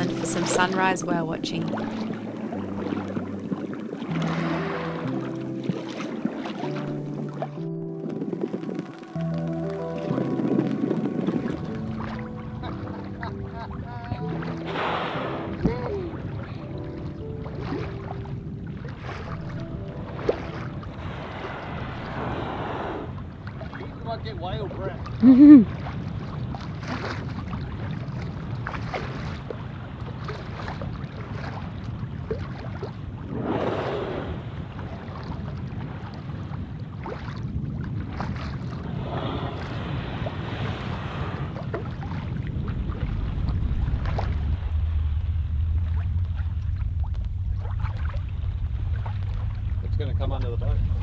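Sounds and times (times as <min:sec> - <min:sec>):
water lapping against hull: 0:00.0 - 0:51.0
wind on microphone: 0:00.0 - 0:51.0
low rumble: 0:18.2 - 0:26.7, 0:37.6 - 0:51.0
whooshing swells: 0:20.7 - 0:24.3, 0:38.8 - 0:51.0
small water slaps: 0:25.7 - 0:33.0.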